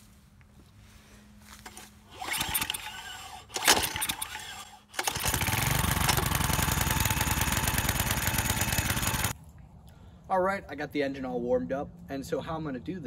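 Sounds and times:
engine pull cord cranking: 0:01.6 - 0:09.4
small engine running: 0:01.6 - 0:09.4.

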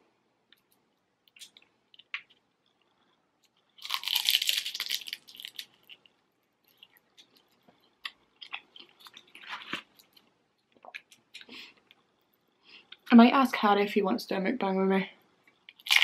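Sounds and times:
chewing: 0:00.6 - 0:12.0
crunching fried food: 0:01.3 - 0:10.3, 0:15.6 - 0:16.0.

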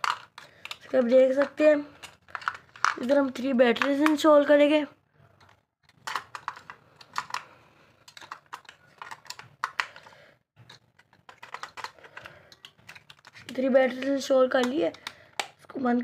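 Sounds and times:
batteries clicking into plastic toy: 0:00.0 - 0:04.3, 0:05.4 - 0:15.7
plastic toy being handled: 0:00.0 - 0:04.5, 0:05.2 - 0:15.8.

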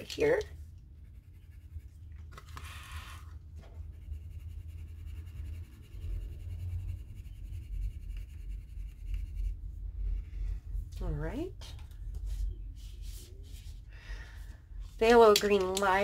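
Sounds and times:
pencil scratching on paper: 0:01.0 - 0:10.3
low rumble: 0:03.8 - 0:15.1.

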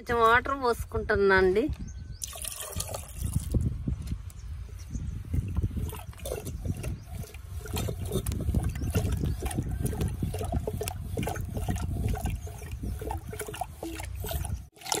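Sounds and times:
churning stick sloshing in pot: 0:05.3 - 0:15.0.

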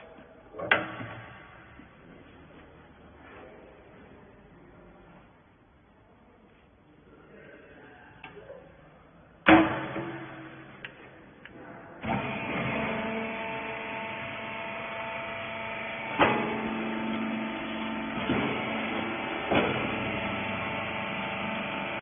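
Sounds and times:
hydraulic cylinder clunks: 0:00.6 - 0:01.7, 0:09.4 - 0:11.0, 0:12.0 - 0:22.0
motor and hydraulic pump humming: 0:12.0 - 0:22.0.

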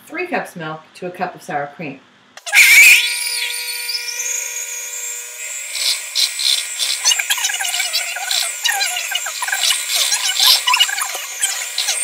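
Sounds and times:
hand mixer motor whine: 0:02.4 - 0:12.0.

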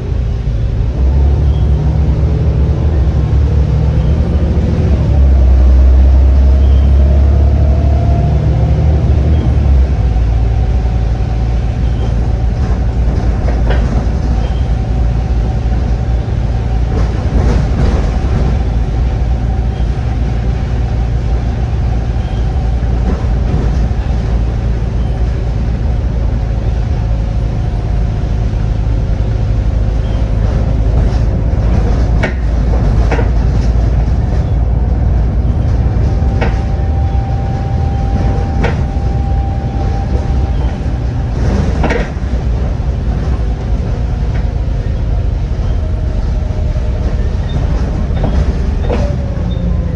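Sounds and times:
bus engine drone with whine: 0:00.0 - 0:49.9
sharp knocks and rattles: 0:30.3 - 0:34.8.

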